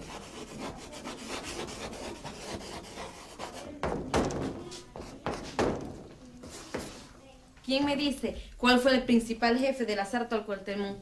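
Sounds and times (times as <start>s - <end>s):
chalk scratching on blackboard: 0.0s - 5.7s, 6.4s - 7.2s.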